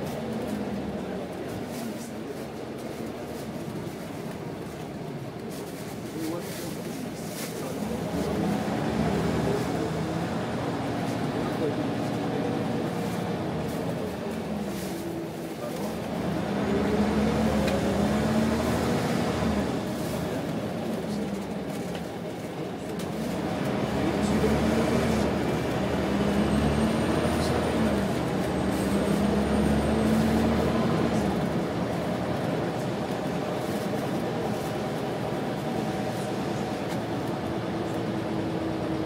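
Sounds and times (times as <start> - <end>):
bus diesel engine: 0.0 - 39.0
road noise rumble: 0.0 - 39.0.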